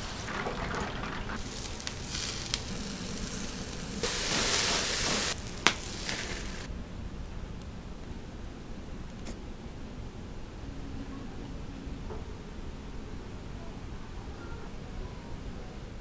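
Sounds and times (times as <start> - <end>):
skewers sizzling: 0.0 - 6.7.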